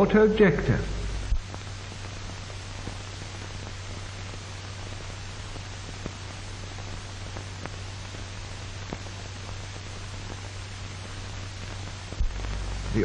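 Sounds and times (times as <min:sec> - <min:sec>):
film soundtrack hiss: 0:00.0 - 0:13.0
low hum: 0:00.1 - 0:01.6, 0:12.1 - 0:13.0.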